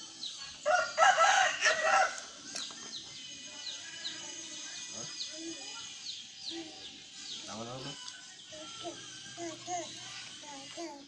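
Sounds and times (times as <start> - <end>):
birds chirping: 0.0 - 11.0
baby babbling: 8.6 - 11.0.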